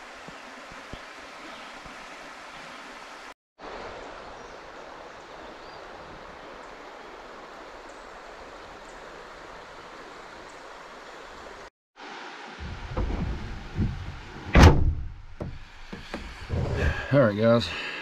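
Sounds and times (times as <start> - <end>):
river rushing over stones: 0.0 - 14.4.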